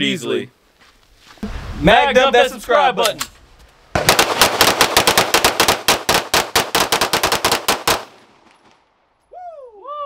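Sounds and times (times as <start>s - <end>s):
rapid pistol shots: 4.0s - 8.5s.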